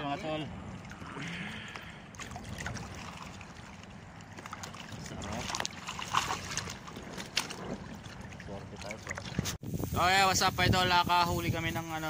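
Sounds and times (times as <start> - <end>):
lake water sloshing and lapping: 0.0 - 9.6
water splashes: 0.0 - 9.6.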